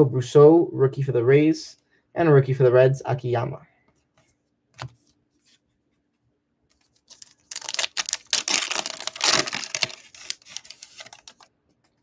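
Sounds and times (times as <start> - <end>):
foil wrapper tearing and crinkling: 6.8 - 11.5.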